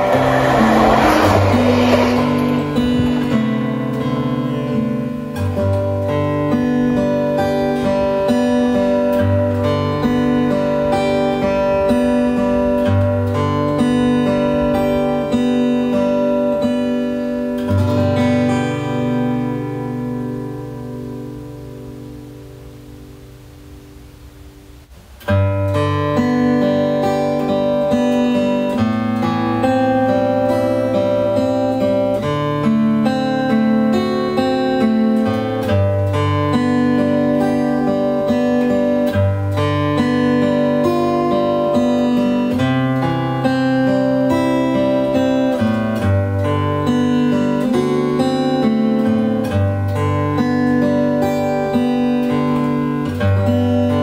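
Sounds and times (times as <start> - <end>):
fingerpicked acoustic guitar: 0.0 - 54.0.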